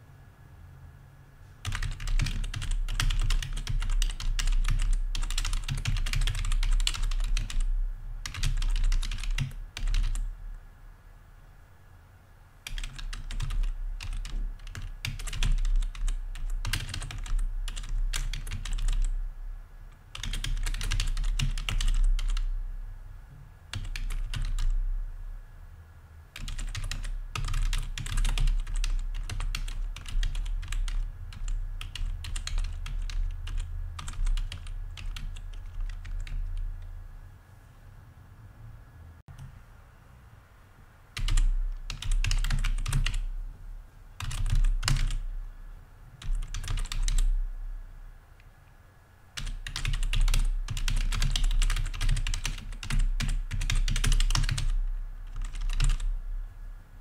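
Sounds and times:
computer keyboard typing: 1.6 - 10.3, 12.6 - 19.2, 20.1 - 22.5, 23.7 - 24.8, 26.4 - 36.9, 41.2 - 43.3, 44.2 - 45.2, 46.2 - 47.4, 49.4 - 56.1.

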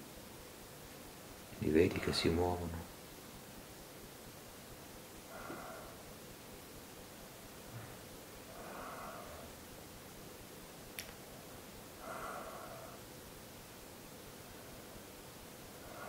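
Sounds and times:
person breathing slowly: 5.2 - 6.1, 7.7 - 9.6, 12.0 - 13.1, 15.7 - 16.0.

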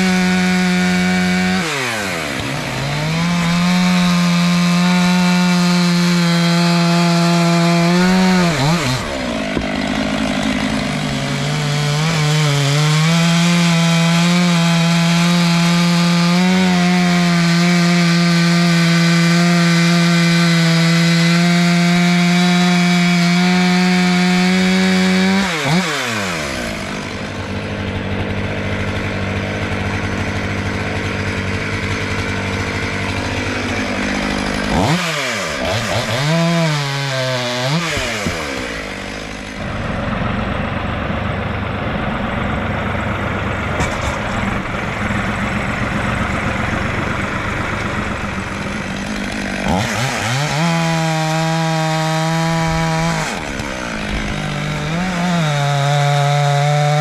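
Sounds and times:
chainsaw cutting wood: 0.0 - 57.0.

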